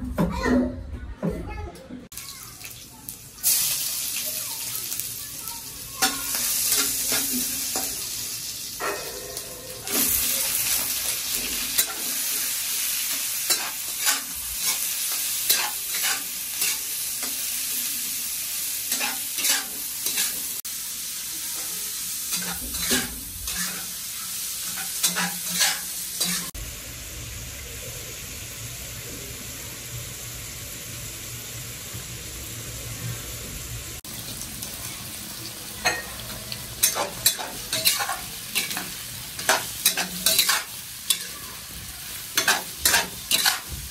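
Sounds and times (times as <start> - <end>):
food sizzling in hot oil: 2.1 - 43.9
metal spatula scraping a wok: 15.5 - 16.9, 18.9 - 20.4, 22.3 - 24.0, 24.6 - 26.5, 36.8 - 41.4, 42.4 - 43.7.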